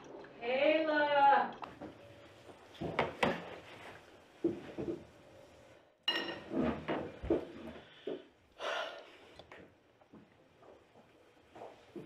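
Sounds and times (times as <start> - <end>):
spoons clinking against bowls: 6.1 - 6.5.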